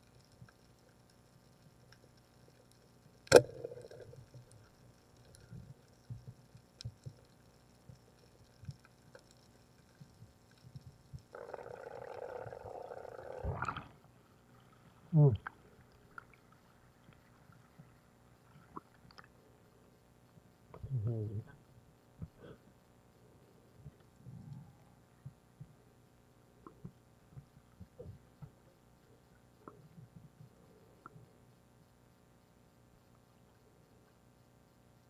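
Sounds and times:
faint underwater ticks: 0.0 - 35.0
water gurgle: 2.4 - 19.4
spear gun shot crack underwater: 3.3 - 3.7
rushing bubbles: 11.3 - 14.1.

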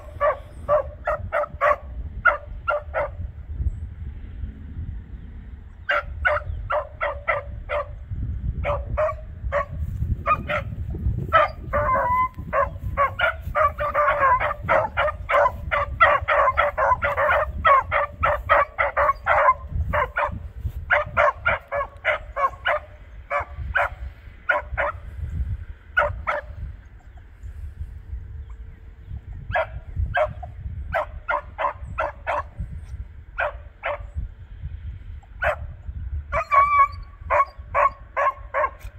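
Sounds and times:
dogs barking: 0.0 - 3.3, 5.9 - 8.0, 8.6 - 25.1, 25.9 - 27.2, 29.4 - 32.6, 33.4 - 34.2, 35.4 - 35.7, 36.3 - 38.9.

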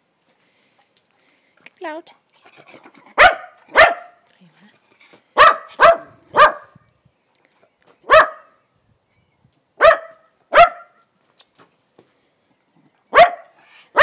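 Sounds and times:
small dog barking: 3.2 - 4.2, 5.4 - 6.8, 8.1 - 8.6, 9.8 - 11.0, 13.1 - 14.0.

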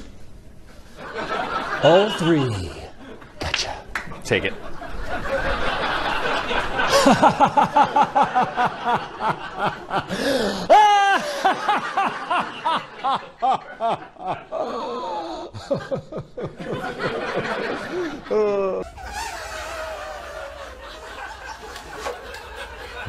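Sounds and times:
man laughing loudly: 6.8 - 18.9, 20.0 - 23.0
high rising squeal: 18.8 - 22.1.

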